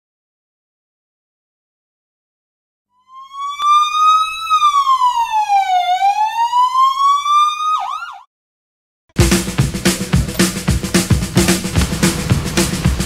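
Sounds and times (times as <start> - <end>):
siren wailing and yelping: 3.0 - 8.3.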